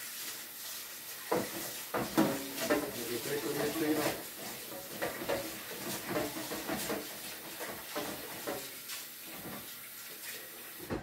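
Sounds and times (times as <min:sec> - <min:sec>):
kitchen things knocking and scraping: 0:01.3 - 0:09.7.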